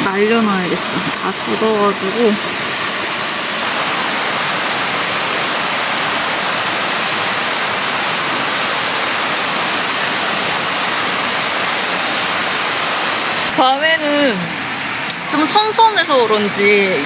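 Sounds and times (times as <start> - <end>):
water rushing: 0.0 - 17.0.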